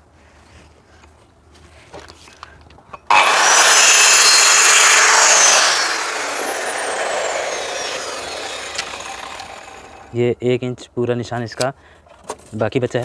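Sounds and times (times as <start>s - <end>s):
circular saw cutting a board: 3.1s - 10.2s.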